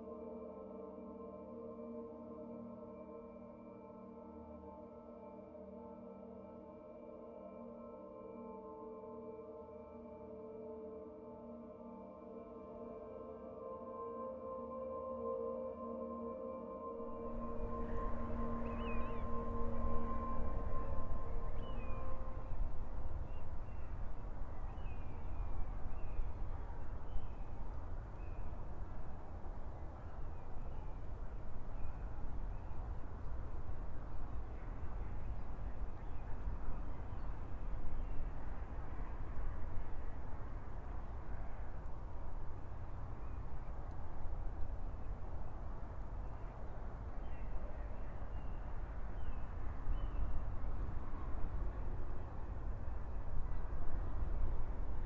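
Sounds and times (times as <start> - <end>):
held music chord: 0.0 - 23.8
wind rumbling on microphone: 17.2 - 55.0.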